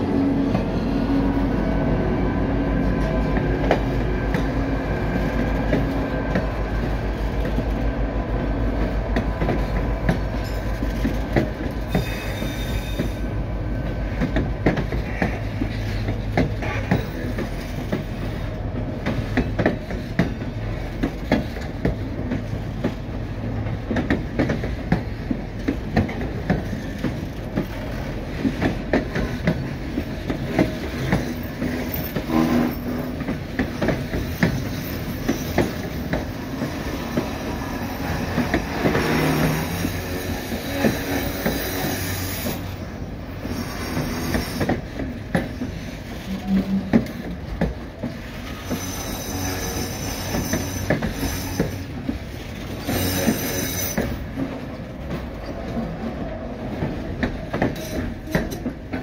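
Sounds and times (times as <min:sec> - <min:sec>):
steel wheels rumbling on rail: 0:00.0 - 0:59.0
high wheel squeal: 0:11.9 - 0:13.3, 0:48.4 - 0:51.9, 0:52.8 - 0:54.2.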